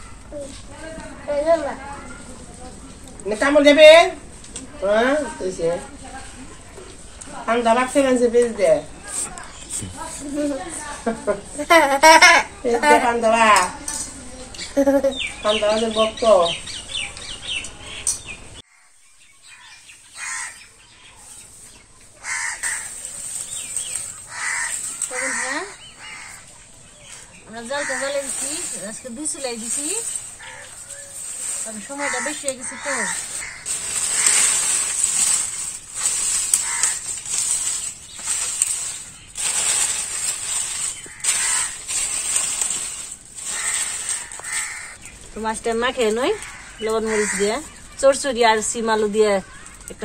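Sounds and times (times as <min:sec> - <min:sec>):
harsh bird calls: 0:14.3 - 0:50.0
crows cawing: 0:18.7 - 0:20.7, 0:22.2 - 0:29.0, 0:29.6 - 0:39.0, 0:40.0 - 0:45.1, 0:46.0 - 0:48.2, 0:49.4 - 0:50.0.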